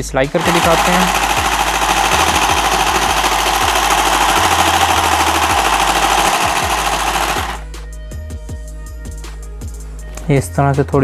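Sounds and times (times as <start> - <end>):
toy sewing machine running: 0.4 - 7.6.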